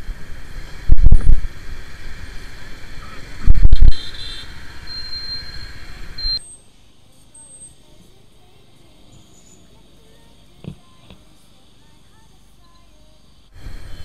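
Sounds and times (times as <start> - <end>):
motorcycle running at low speed: 0.0 - 6.4
high-pitched beep: 4.9 - 6.5.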